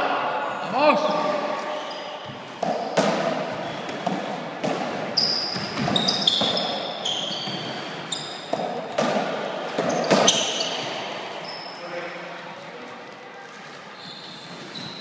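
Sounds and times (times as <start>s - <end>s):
sneakers squeaking on wooden floor: 1.5s - 12.1s, 13.6s - 15.0s
squash ball smacks: 2.6s - 6.8s, 8.5s - 10.6s.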